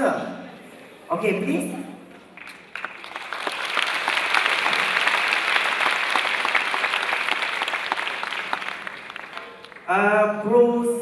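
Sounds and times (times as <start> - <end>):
audience applauding: 2.2 - 9.9.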